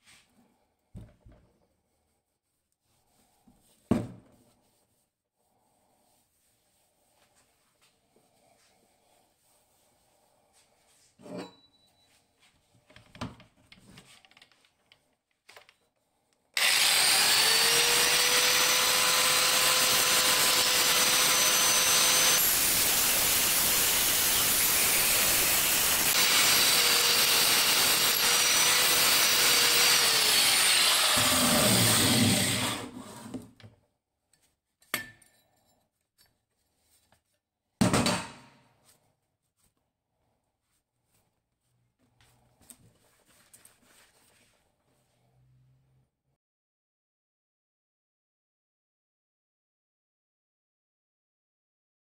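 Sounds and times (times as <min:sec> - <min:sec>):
angle grinder grinding metal: 0:16.6 - 0:33.0.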